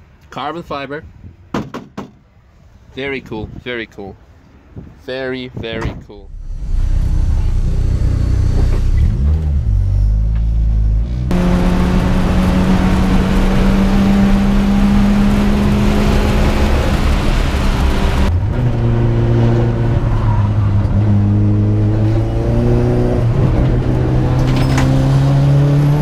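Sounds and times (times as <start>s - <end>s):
car engine running: 6.3s - 18.5s.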